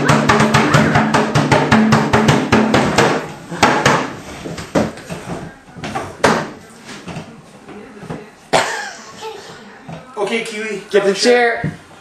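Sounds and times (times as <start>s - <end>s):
fast drum roll: 0.0s - 3.1s
knocks and thumps: 0.0s - 6.5s.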